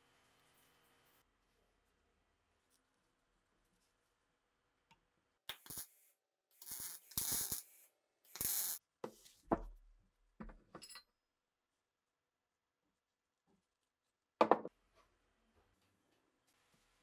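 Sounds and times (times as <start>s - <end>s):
welding arc bursts: 6.6s - 8.8s.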